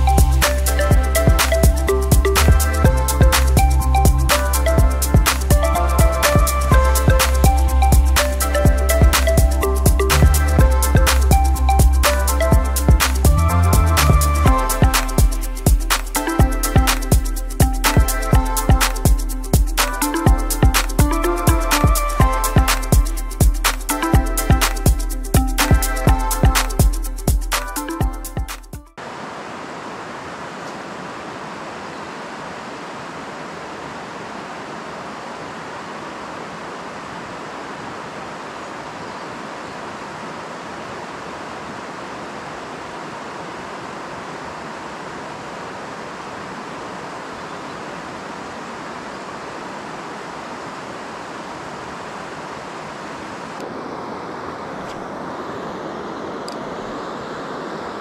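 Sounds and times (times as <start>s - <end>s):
water rushing over weir: 29.0s - 58.0s.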